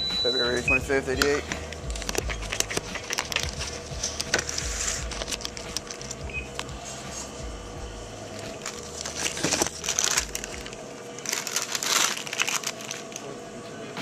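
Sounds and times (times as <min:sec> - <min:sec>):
scraping crinkling bursts: 0:01.5 - 0:07.5, 0:08.3 - 0:13.4
rustling and crinkling: 0:02.0 - 0:07.3, 0:08.4 - 0:13.3.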